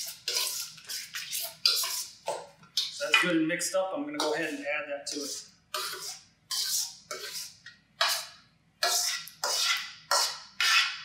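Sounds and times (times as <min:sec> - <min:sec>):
spoon scraping metal bowl: 0:00.0 - 0:03.3, 0:04.2 - 0:11.0.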